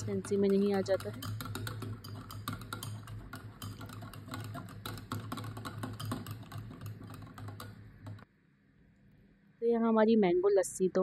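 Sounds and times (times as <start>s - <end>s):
wire whisk clicking against glass bowl: 0.0s - 8.2s.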